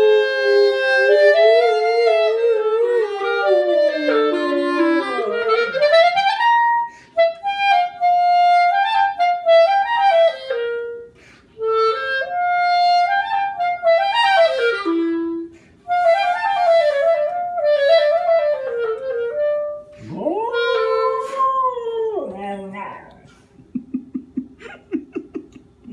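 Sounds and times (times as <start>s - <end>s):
clarinet playing melodic phrases: 0.0s - 22.0s
dog howling: 20.0s - 23.4s.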